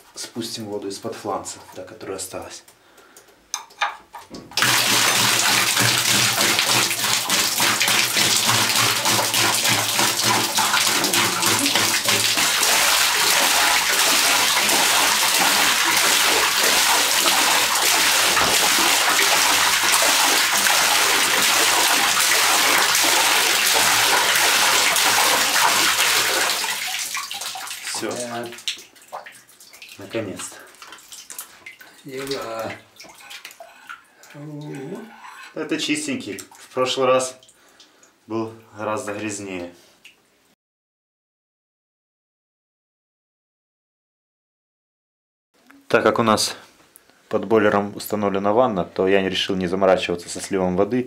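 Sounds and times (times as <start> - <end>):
water gushing into bathtub: 4.5 - 37.8.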